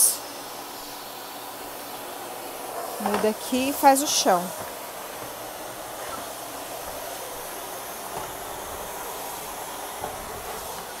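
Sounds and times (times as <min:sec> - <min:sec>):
vacuum cleaner running: 0:00.0 - 0:11.0.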